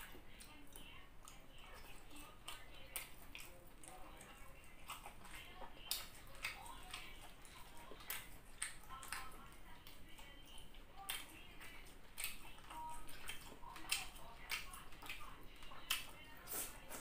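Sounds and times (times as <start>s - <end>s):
person chewing: 0.0s - 17.0s
wet mouth clicks and lip smacks: 8.0s - 10.0s.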